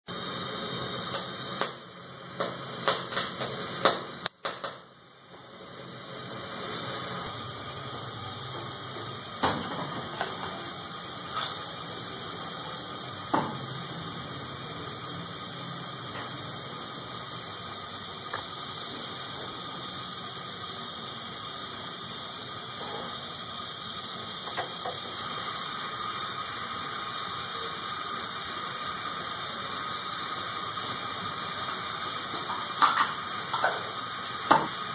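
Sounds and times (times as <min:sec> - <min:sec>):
gas burner flame hissing: 0:00.0 - 0:34.9
corn popping: 0:00.5 - 0:04.9, 0:30.6 - 0:34.9.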